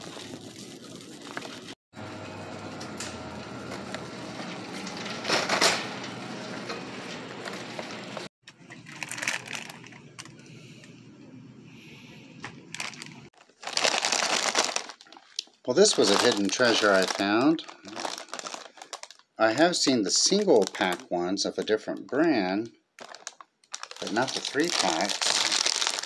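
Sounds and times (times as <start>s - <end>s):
shopping cart rolling and rattling: 2.7s - 10.0s.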